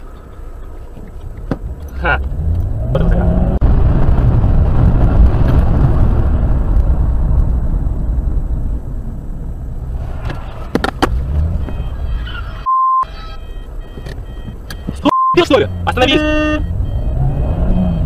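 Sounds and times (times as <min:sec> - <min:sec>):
road and engine rumble in car: 0:00.0 - 0:18.0
high beep: 0:11.6 - 0:18.0.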